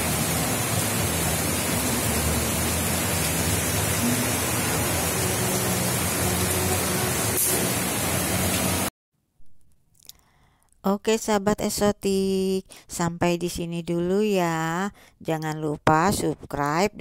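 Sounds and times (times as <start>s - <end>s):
water cascading over rocks: 0.0s - 8.9s.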